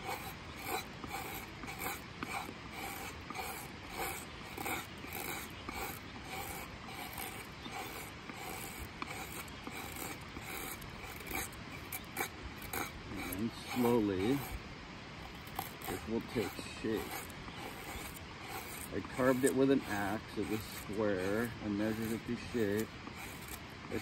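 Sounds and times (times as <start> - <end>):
knife scraping wood shavings: 0.0 - 14.6, 15.3 - 24.0.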